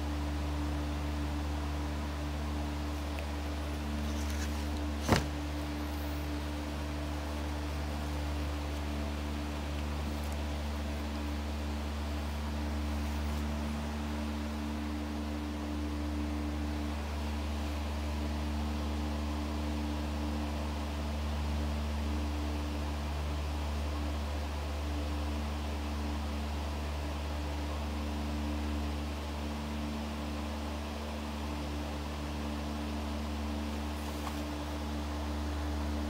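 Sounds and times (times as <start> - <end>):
steady low hum with hiss: 0.0 - 36.0.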